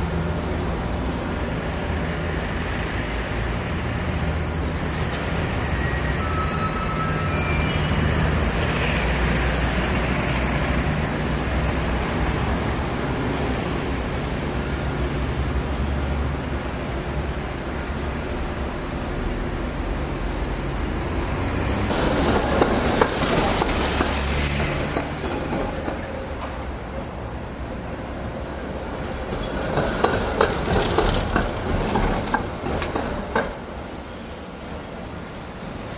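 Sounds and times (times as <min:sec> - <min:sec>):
electric tram humming: 0:00.0 - 0:35.9
street traffic: 0:00.0 - 0:35.9
wheels clicking over rail joints: 0:21.9 - 0:26.8, 0:29.1 - 0:33.8.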